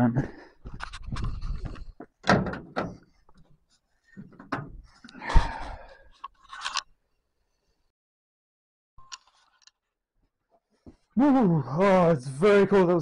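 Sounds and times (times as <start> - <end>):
van door clunking and rattling: 2.2 - 3.0.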